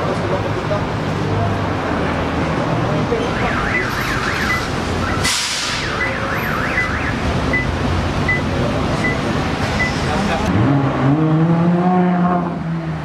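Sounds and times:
low traffic rumble: 0.0 - 13.0
car alarm warbling and beeping: 3.2 - 10.0
brief loud hiss: 5.2 - 5.8.

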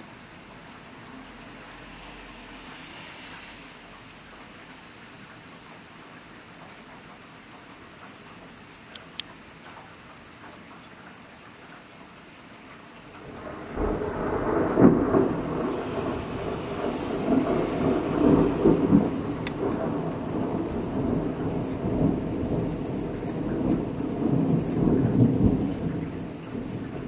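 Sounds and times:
rain falling: 0.0 - 27.0
thunder rumbling: 13.0 - 27.0.

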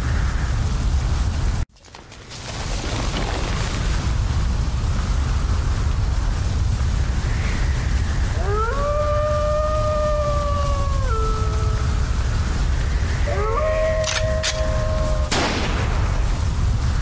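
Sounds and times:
low rumble: 2.8 - 17.0
wolf howling: 8.3 - 15.4.

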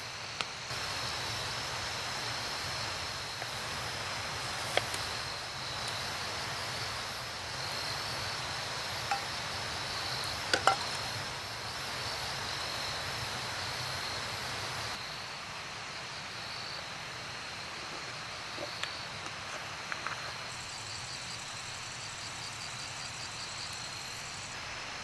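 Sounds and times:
high insect trill: 0.0 - 15.4.

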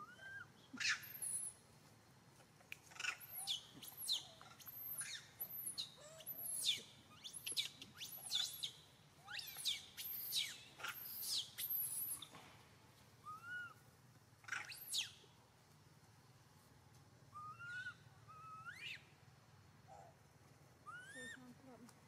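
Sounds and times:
short rising-and-falling whistles: 0.0 - 1.6, 9.3 - 12.3.

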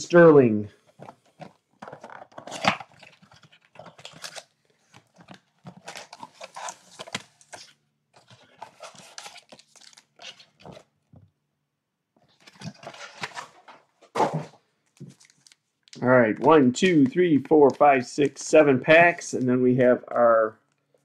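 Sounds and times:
plastic wrap crinkling and tearing: 1.9 - 7.8, 8.4 - 10.8, 15.0 - 16.0.

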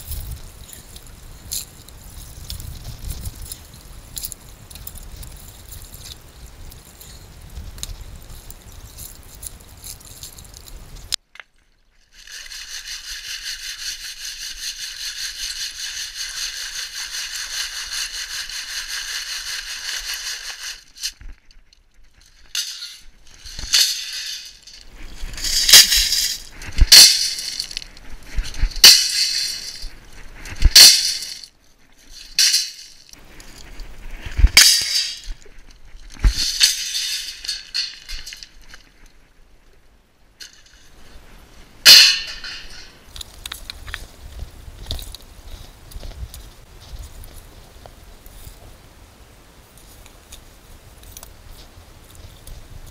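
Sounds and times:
gravel rattling in a sieve: 12.1 - 21.5, 22.1 - 38.9.

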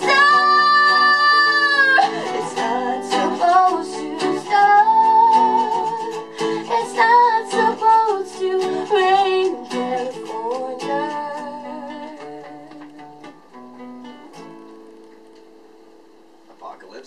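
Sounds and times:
woman singing: 0.0 - 13.4
acoustic guitar: 0.0 - 16.8.

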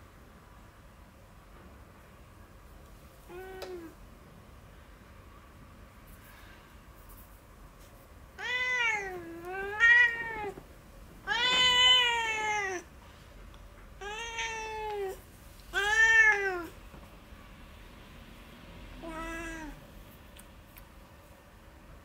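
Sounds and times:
cat meowing: 8.4 - 10.6, 11.2 - 12.9, 14.0 - 16.8, 19.0 - 19.8.

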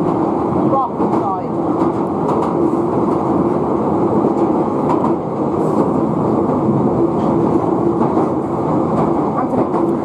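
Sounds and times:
train wheels rumbling on rail: 0.0 - 10.0.

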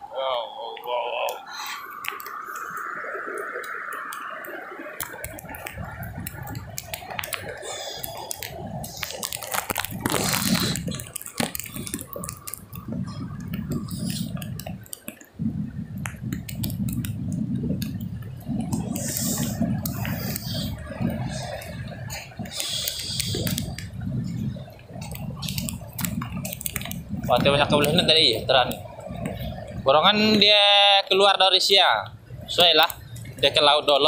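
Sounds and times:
surf washing: 0.0 - 34.0
wind buffeting the microphone: 1.8 - 34.0
sharp clicks and taps: 10.8 - 15.4.

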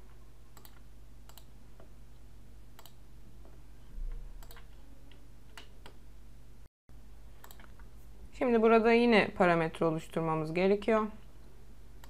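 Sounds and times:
low electrical hum: 0.0 - 12.0
computer mouse clicks: 0.6 - 1.5, 2.8 - 3.0, 4.4 - 4.8, 7.4 - 7.9.

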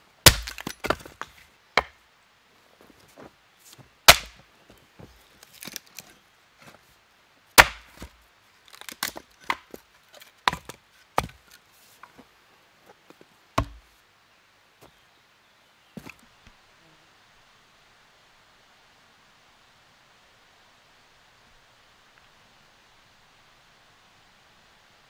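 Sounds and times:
split wood pieces clattering: 0.3 - 1.4, 5.4 - 6.2, 8.7 - 11.6
axe blows splitting log: 4.1 - 4.4, 7.6 - 8.1.

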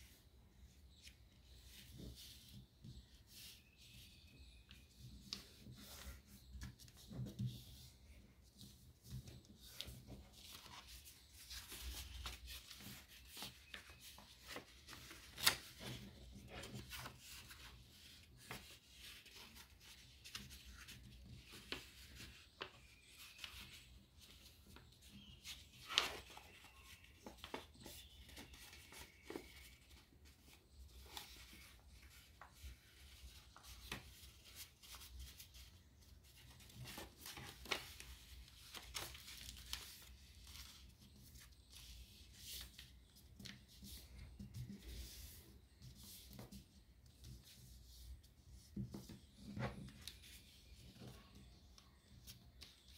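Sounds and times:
paper folding and rustling: 0.0 - 52.9
paper crackles: 8.6 - 46.6.

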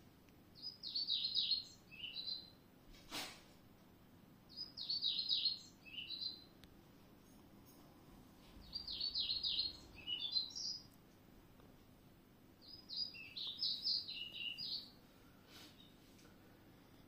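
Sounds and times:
songbird singing high falling notes: 0.6 - 2.6, 4.5 - 6.5, 8.6 - 10.9, 12.6 - 15.0.

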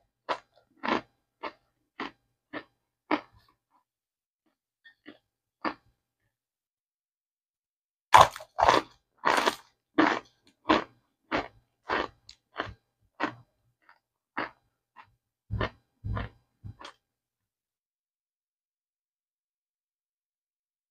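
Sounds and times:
person crunching and chewing: 0.2 - 3.6, 4.9 - 5.9, 8.2 - 17.0.

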